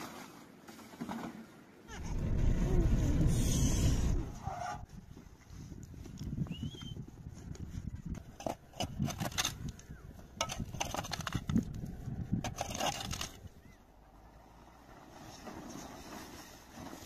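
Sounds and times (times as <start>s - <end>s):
shovel digging stony ground: 8.1s - 13.7s.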